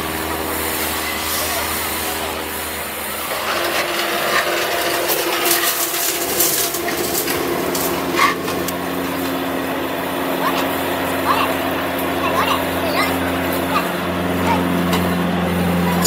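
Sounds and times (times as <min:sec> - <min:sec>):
motor hum: 0:00.0 - 0:16.0
scraping and rattling: 0:03.1 - 0:09.5.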